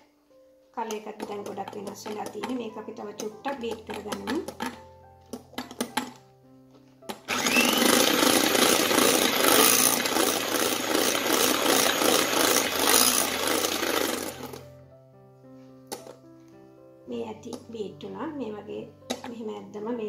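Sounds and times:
electric hand mixer whipping: 7.2s - 14.6s.

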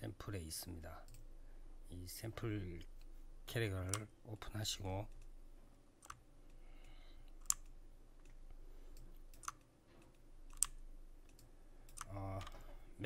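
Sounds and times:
faint steady hum: 0.0s - 13.0s
computer mouse clicking: 1.0s - 1.3s, 6.0s - 12.7s.

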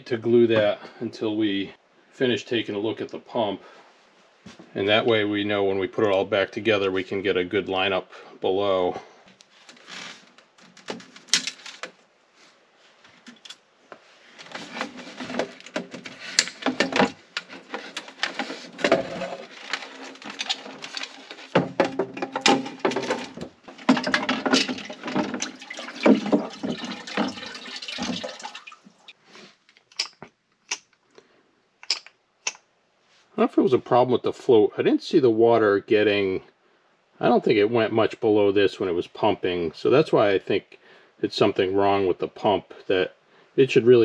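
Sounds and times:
water sloshing and splashing: 14.5s - 29.2s
pump and basin knocking: 21.6s - 28.8s.

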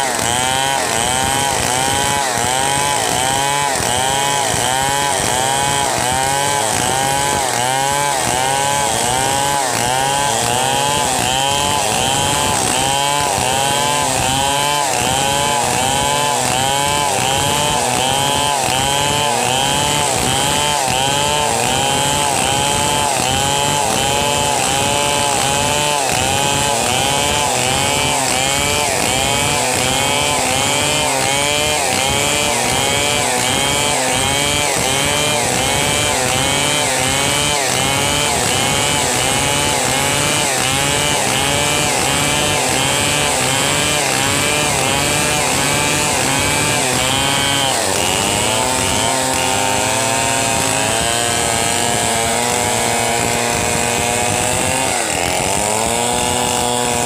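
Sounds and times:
chainsaws cutting a log: 0.0s - 57.0s.

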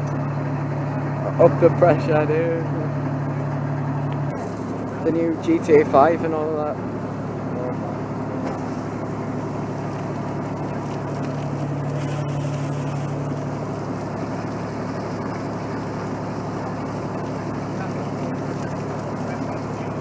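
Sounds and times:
fire engine pump drone: 0.0s - 20.0s
water jet hissing: 4.3s - 7.5s, 8.2s - 20.0s.

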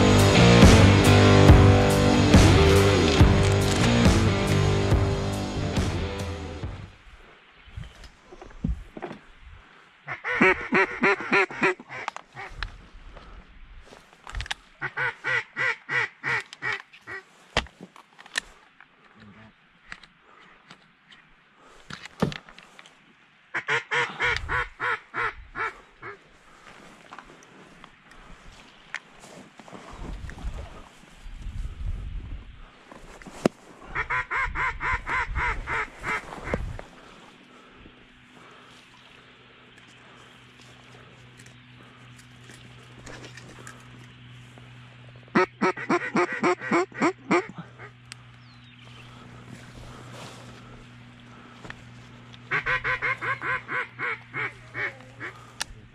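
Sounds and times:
duck quacking: 10.1s - 12.6s, 14.8s - 17.3s, 23.5s - 26.2s, 33.8s - 36.6s, 45.3s - 48.0s, 52.5s - 55.6s.

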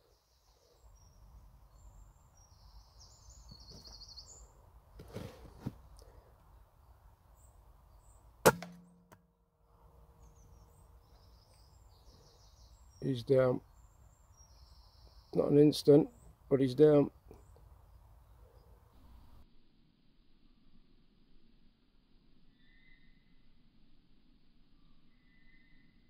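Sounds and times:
air rifle shot: 8.4s - 9.2s.

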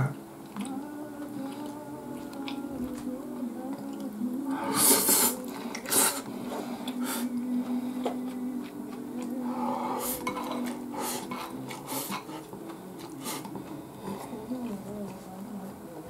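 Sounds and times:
tableware clinking against dishes: 10.2s - 11.5s.

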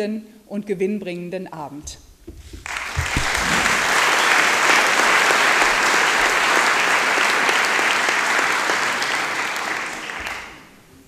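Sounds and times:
audience applause: 2.6s - 10.7s.

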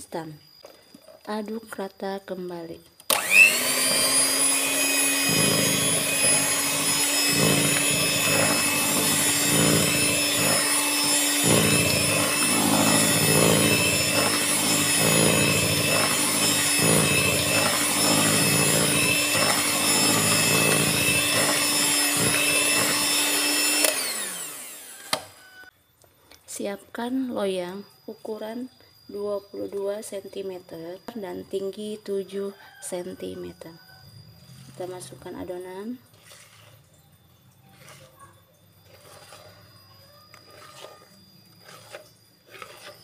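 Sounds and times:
electric hand mixer running: 3.1s - 25.7s, 37.7s - 38.2s, 38.8s - 43.0s.

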